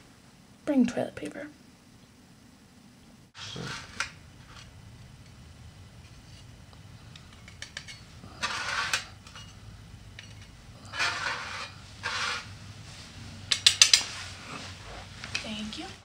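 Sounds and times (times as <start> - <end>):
knife scraping fire starter flint: 10.9 - 12.5.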